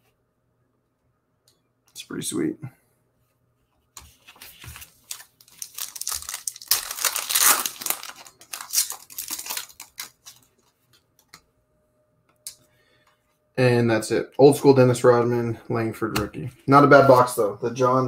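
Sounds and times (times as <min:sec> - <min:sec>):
foil wrapper tearing and crinkling: 0:05.0 - 0:10.5.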